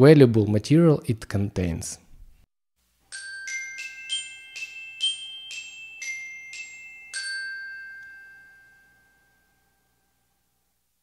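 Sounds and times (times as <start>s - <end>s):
glockenspiel-like jingle: 3.1s - 10.4s.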